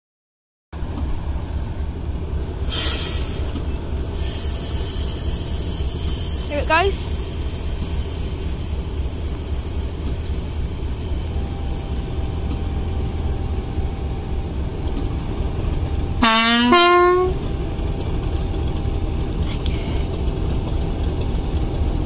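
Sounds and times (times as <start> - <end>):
diesel locomotive engine idling: 0.8 - 22.0
two-tone train horn: 16.1 - 17.6.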